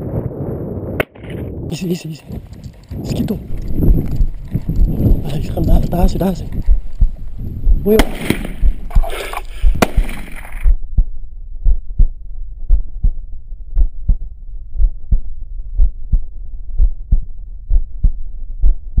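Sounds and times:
rustling field noise: 0:00.0 - 0:10.8
heartbeat thuds: 0:01.8 - 0:19.0.

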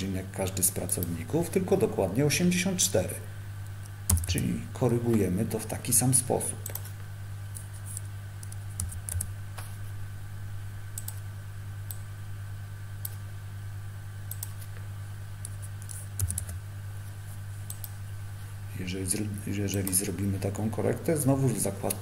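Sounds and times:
steady low hum: 0:00.0 - 0:22.0
keyboard and mouse clicks: 0:04.1 - 0:04.3, 0:07.5 - 0:09.7, 0:11.0 - 0:11.2, 0:14.3 - 0:14.8, 0:15.4 - 0:16.6, 0:17.7 - 0:18.0.

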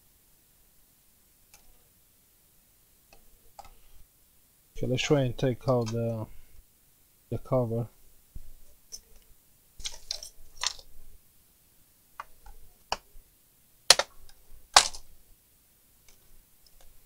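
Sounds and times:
plastic cover clicking and snapping: 0:09.8 - 0:10.9, 0:13.9 - 0:15.0.

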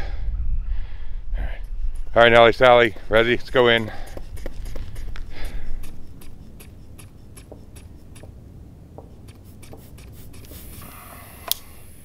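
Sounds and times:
low steady rumble: 0:00.0 - 0:09.3
small clicks: 0:11.4 - 0:11.7.

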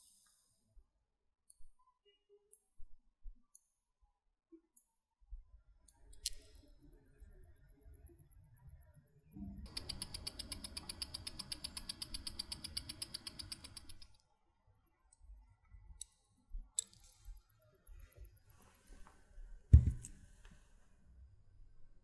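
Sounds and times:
faint clicks: 0:05.9 - 0:14.2
watch ticking fast: 0:06.4 - 0:14.1.

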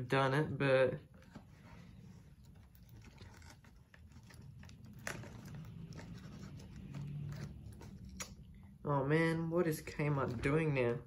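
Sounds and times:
scratching at sticky tape: 0:02.2 - 0:08.5.

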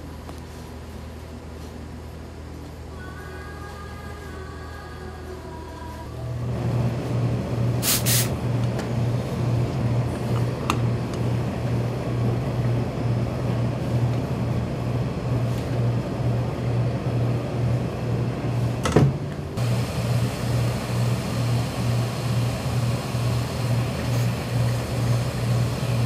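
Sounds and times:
brief hiss: 0:07.8 - 0:08.3.

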